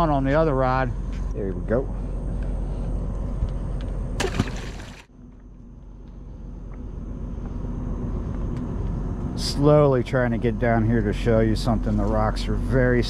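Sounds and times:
low rumble: 0.0s - 13.0s
fish splashing into water: 4.2s - 5.1s.

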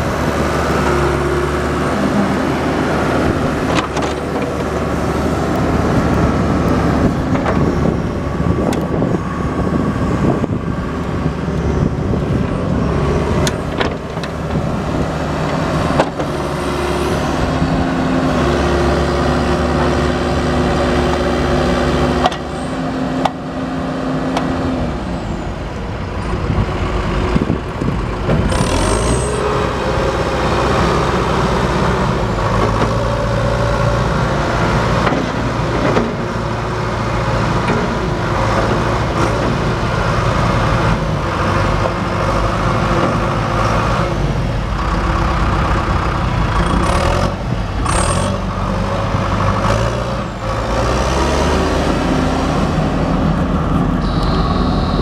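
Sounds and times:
diesel engine running: 0.0s - 55.0s
brief high squeaks: 54.0s - 55.0s.

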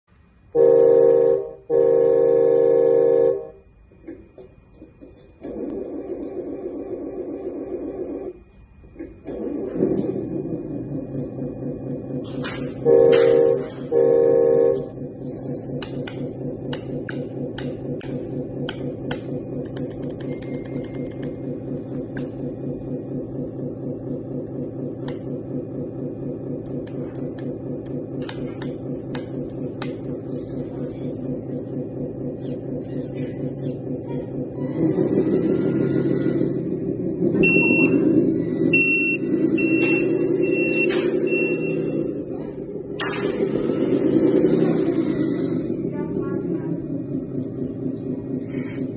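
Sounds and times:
simulated diesel engine idling: 0.3s - 3.6s, 9.4s - 48.9s
simulated air horn: 0.5s - 3.7s, 12.8s - 15.0s
high electronic warning beeps: 12.8s - 15.6s, 37.4s - 42.2s.

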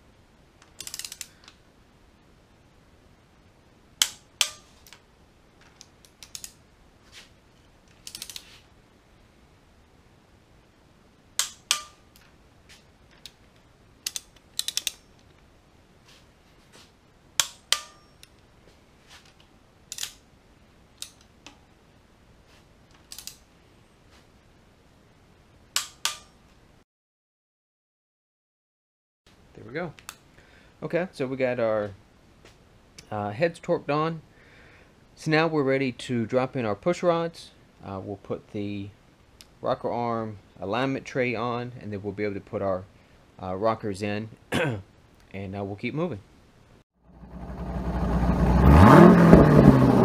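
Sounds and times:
torque wrench clicking: 0.7s - 1.3s, 6.0s - 6.6s, 8.0s - 8.4s, 14.0s - 15.0s
wrench ratchet clicks: 0.7s - 1.3s, 6.1s - 6.6s, 8.0s - 8.4s, 14.0s - 15.0s.

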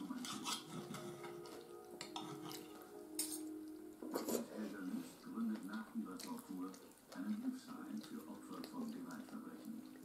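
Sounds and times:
wet squishy food handling: 4.6s - 10.0s.

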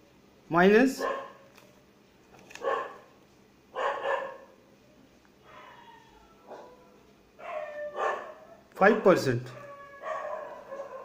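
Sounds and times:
dog barking: 1.0s - 1.4s, 2.6s - 3.1s, 3.7s - 4.6s, 6.4s - 6.8s, 7.4s - 9.2s, 10.0s - 11.0s.

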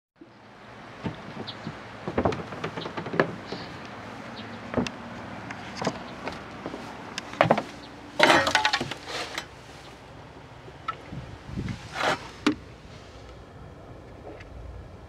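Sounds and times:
knocks and clicks: 1.0s - 3.8s.

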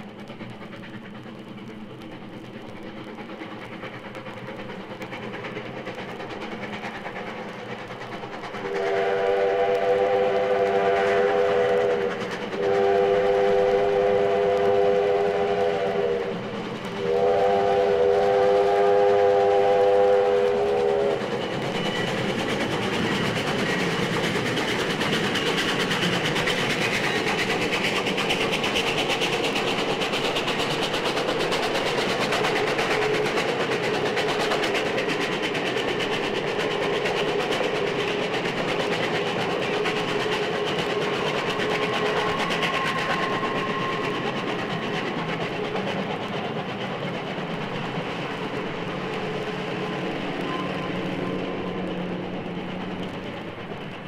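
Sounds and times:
train running noise: 0.0s - 54.0s
steam locomotive whistle: 8.6s - 16.4s, 17.0s - 22.1s, 41.8s - 44.4s, 50.4s - 51.9s.

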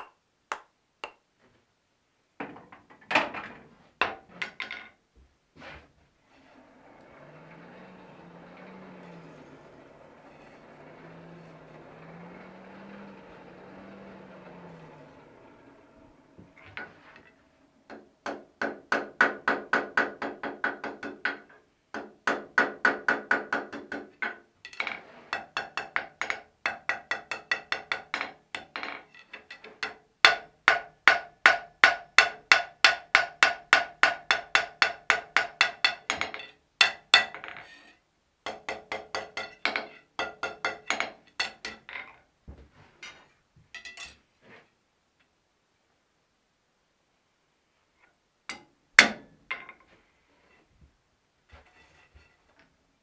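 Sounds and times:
hammer striking iron on anvil: 48.5s - 49.2s.

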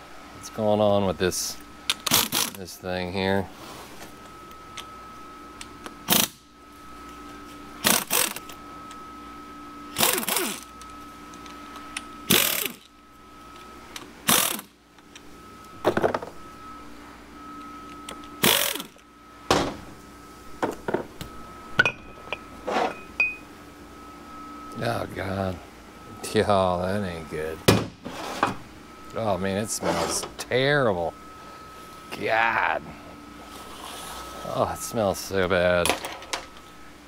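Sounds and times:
faint steady hum: 0.0s - 37.0s
ratchet bursts: 1.9s - 2.6s, 6.1s - 6.4s, 7.8s - 8.4s, 9.9s - 10.7s, 12.3s - 12.8s, 14.2s - 14.7s, 18.4s - 19.0s.

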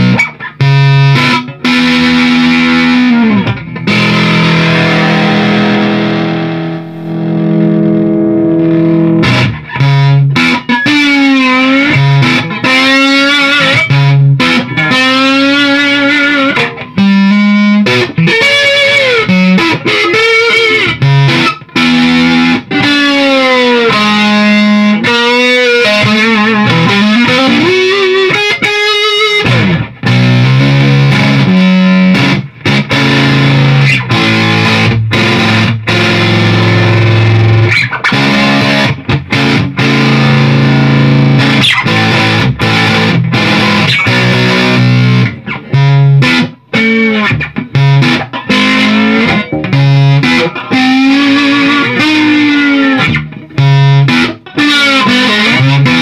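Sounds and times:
fuzzed electric guitar lead: 0.0s - 56.0s.

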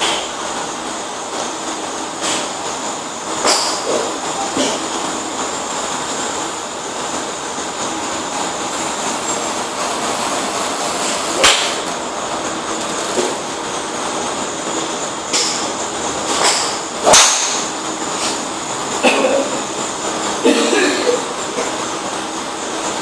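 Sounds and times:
steady background noise: 0.0s - 23.0s
golf club striking ball: 3.4s - 4.1s.

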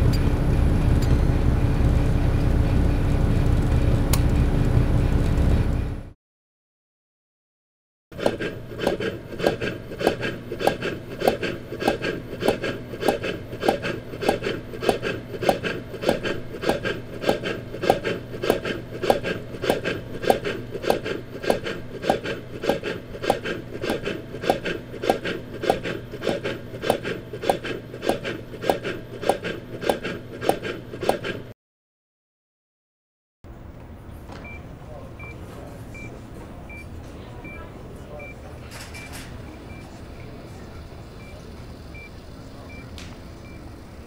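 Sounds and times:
rhythmic rasping scraping strokes: 8.2s - 31.5s.

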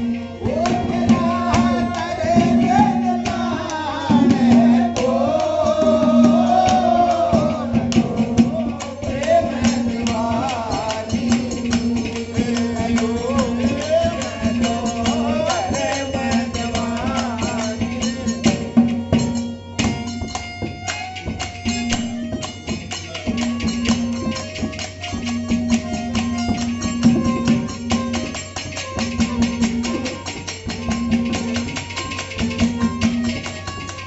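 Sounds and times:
hand percussion beat: 0.0s - 34.0s
harmonium held notes: 0.0s - 34.0s
person singing folk melody: 0.4s - 18.7s.

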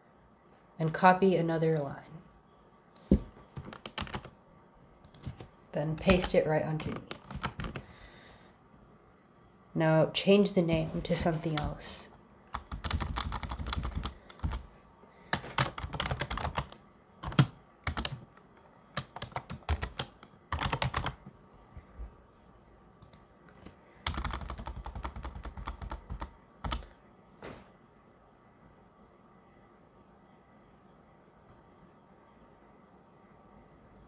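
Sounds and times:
computer keyboard typing: 3.5s - 4.4s, 5.0s - 7.9s, 11.1s - 11.8s, 12.5s - 14.7s, 15.3s - 21.3s, 23.0s - 26.9s.

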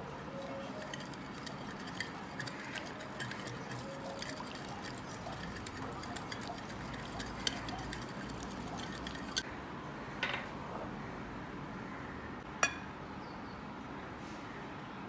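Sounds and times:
whisk clinking against bowl: 0.3s - 9.4s
dishware clink: 12.6s - 12.9s.

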